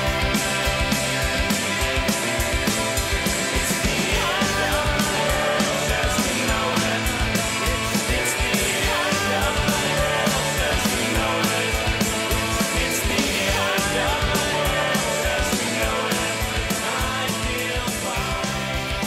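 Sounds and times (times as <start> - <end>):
rock music with fast drum beat: 0.0 - 19.0.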